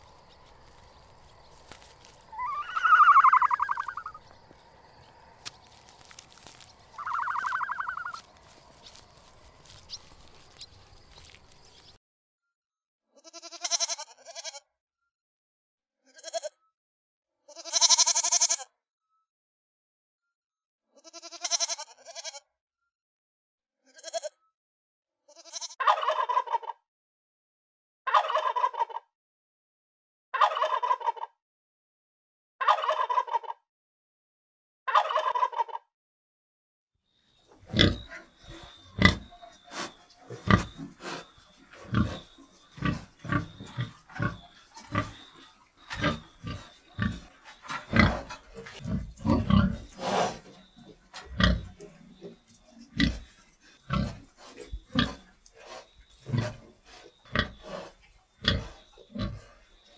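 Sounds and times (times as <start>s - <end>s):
young goats bleating: 1.6s - 4.2s, 6.0s - 8.5s, 13.2s - 14.6s, 16.1s - 16.6s, 17.5s - 18.6s, 21.0s - 22.4s, 23.9s - 24.3s, 25.3s - 25.8s
turkey gobbling: 1.7s - 4.2s, 6.4s - 8.3s, 25.8s - 26.7s, 28.1s - 29.0s, 30.4s - 31.3s, 32.7s - 33.6s, 34.9s - 35.8s
short animal call: 2.3s - 4.2s, 7.0s - 8.2s.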